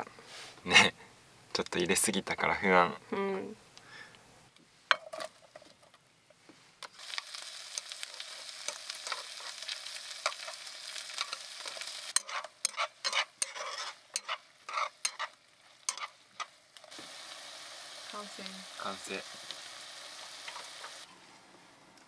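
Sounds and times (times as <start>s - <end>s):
food sizzling in frying pan: 6.8s - 21.1s
metal tongs clacking on pan: 11.2s - 16.5s.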